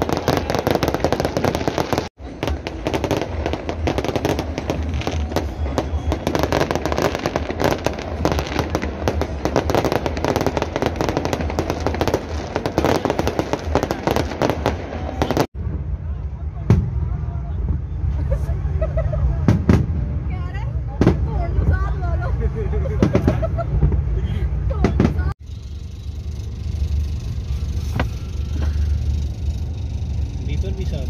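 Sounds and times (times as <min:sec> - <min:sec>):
fireworks bangs and crackles: 0:00.0 - 0:18.2, 0:19.4 - 0:25.4.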